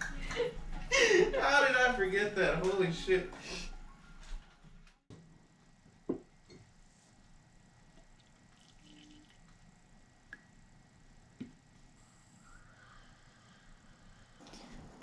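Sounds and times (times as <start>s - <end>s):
coffee pouring into a mug: 7.8s - 10.1s.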